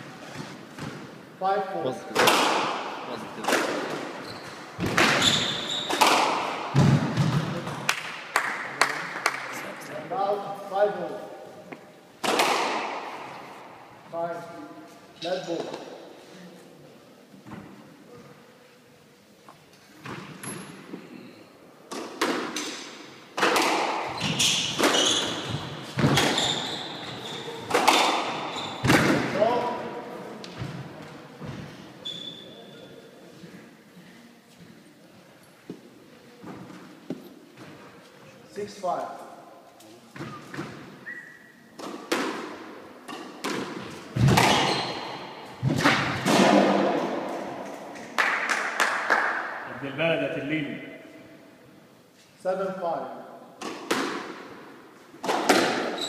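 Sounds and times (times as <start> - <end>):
squash ball hits echoing: 2.1 - 4.2, 4.8 - 9.4, 12.2 - 13.5, 21.9 - 29.8, 41.8 - 48.2, 53.6 - 56.0
shoes squeaking on wooden floor: 4.0 - 6.1, 24.1 - 29.0, 31.5 - 33.0, 43.9 - 45.3.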